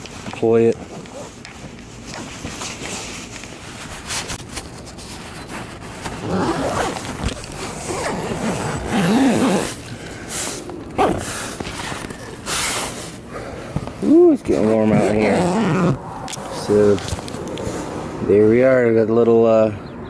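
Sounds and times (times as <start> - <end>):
zipper rasping: 0.8 - 1.4, 6.0 - 9.8, 11.0 - 12.9, 14.6 - 16.0
clicks of zipper pull and fabric: 6.0 - 9.8.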